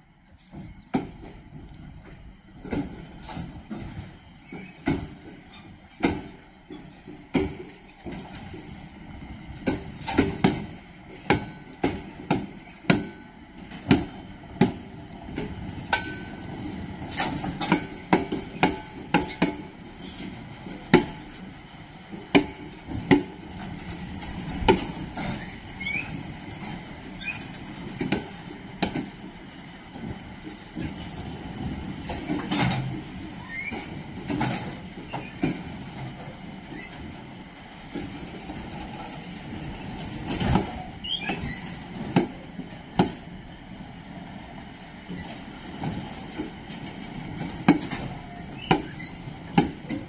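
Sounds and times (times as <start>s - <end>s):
train rolling on rails: 0.0s - 50.0s
wheel squeals: 25.3s - 28.1s, 33.0s - 34.0s, 35.0s - 35.5s, 39.8s - 43.0s, 48.0s - 49.5s.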